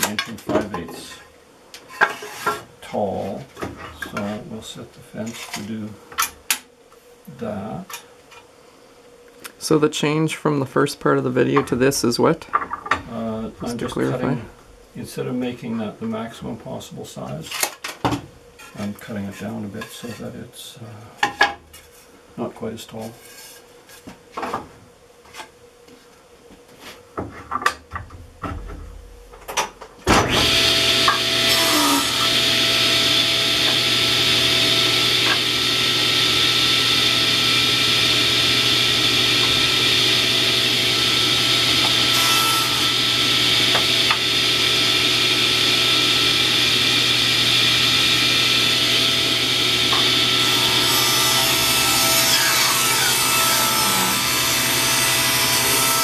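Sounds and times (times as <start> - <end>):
table saw ripping board: 30.2 - 56.0.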